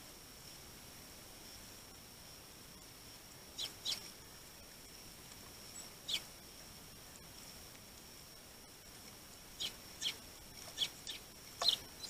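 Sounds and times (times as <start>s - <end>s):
sparrows chirping: 3.6s - 4.1s, 5.7s - 6.3s, 9.6s - 12.0s.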